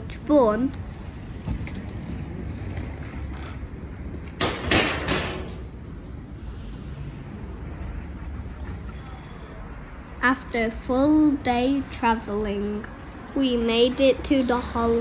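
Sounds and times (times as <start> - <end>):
scooter wheels rumbling on paving: 1.4 - 4.4.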